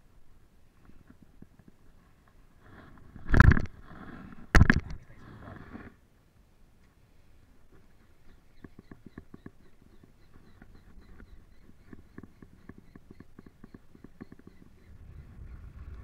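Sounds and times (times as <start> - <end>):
low rumble: 14.9 - 16.0.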